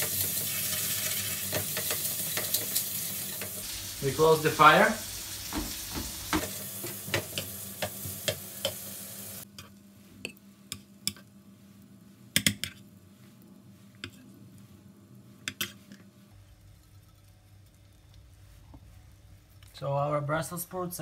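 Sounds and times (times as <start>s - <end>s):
sprouts sizzling in frying pan: 0.0s - 9.5s.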